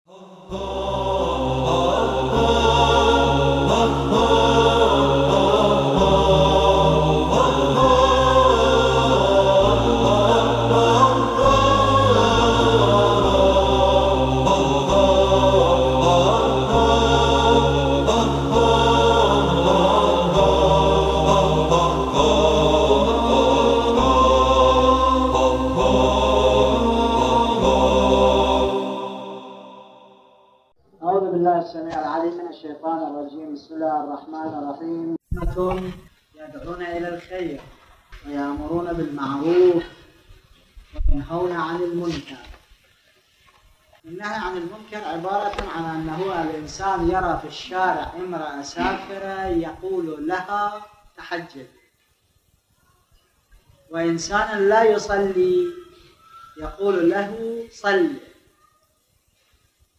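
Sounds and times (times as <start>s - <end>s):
choir chanting: 0.1s - 30.7s.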